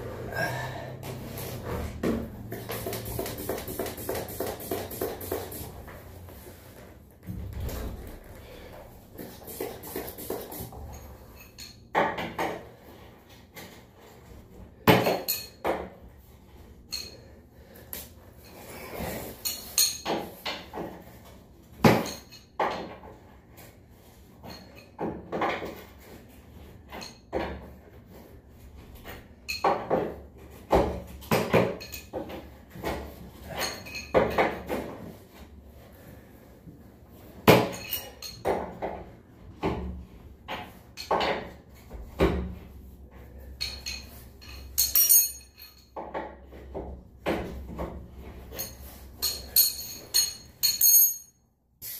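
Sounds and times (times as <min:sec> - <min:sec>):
hand tools clinking on metal: 0:43.6 - 0:46.0, 0:48.5 - 0:51.4.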